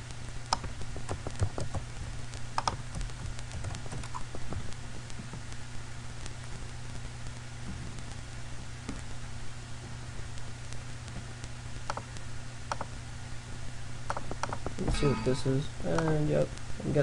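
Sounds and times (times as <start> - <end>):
steady low hum: 0.0 - 17.0
keyboard key presses: 0.5 - 1.8, 2.6 - 4.7, 14.1 - 14.7
mouse clicking: 0.5 - 1.8, 2.6 - 4.8, 11.9 - 12.1, 12.7 - 12.9, 14.1 - 14.7, 15.9 - 16.2.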